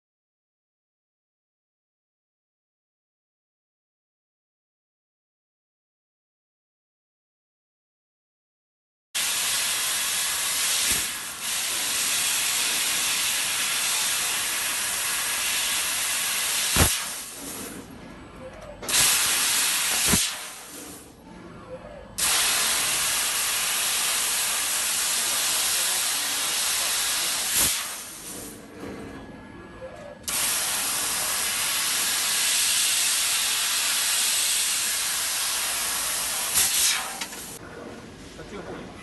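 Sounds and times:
assist gas hissing: 9.2s - 17.4s, 22.2s - 28.4s, 30.3s - 37.6s.

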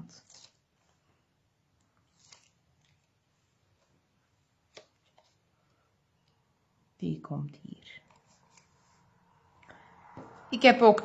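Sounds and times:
paper rustle: 0.1s - 1.2s, 1.9s - 5.5s.

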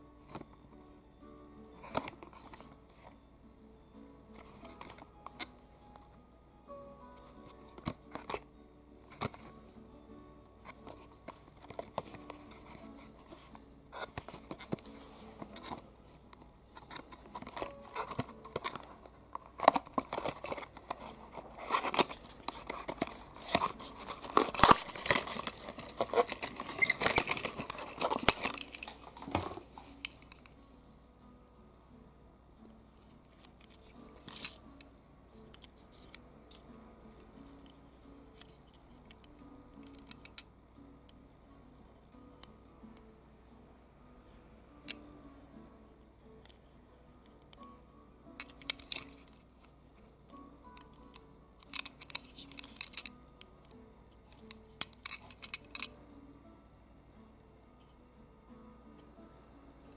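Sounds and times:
packaging rustling and crinkling: 16.8s - 30.2s.

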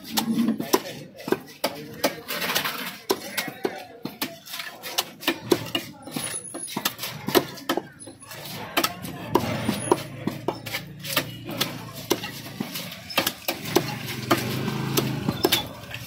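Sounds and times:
knife chopping on wooden block: 8.8s - 15.7s.

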